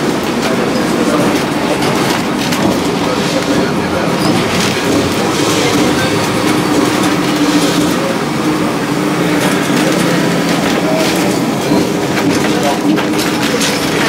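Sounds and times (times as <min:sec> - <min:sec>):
tram wheels rumbling and rattling: 0:00.0 - 0:14.0.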